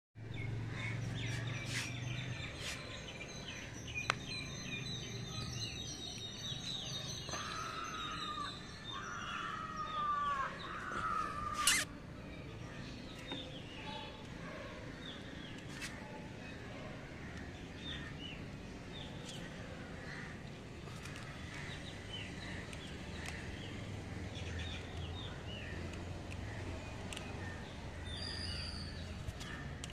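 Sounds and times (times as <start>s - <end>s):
birds chirping and calling: 0.2s - 11.9s, 19.0s - 29.9s
outdoor background hum: 0.2s - 29.9s
sharp clicks: 25.7s - 27.6s.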